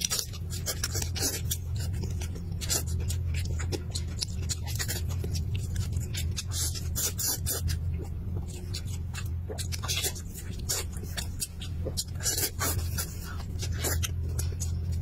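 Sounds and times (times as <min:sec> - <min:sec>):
steady low hum: 0:00.0 - 0:15.0
wet chewing and lip smacking: 0:00.0 - 0:15.0.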